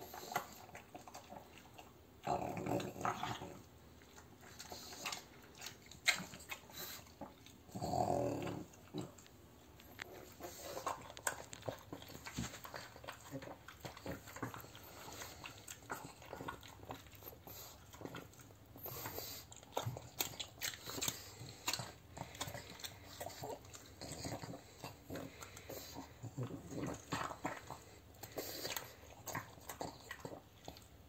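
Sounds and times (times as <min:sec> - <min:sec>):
dog chewing and lapping food: 0:00.0 - 0:31.0
dog grunting: 0:07.7 - 0:09.2.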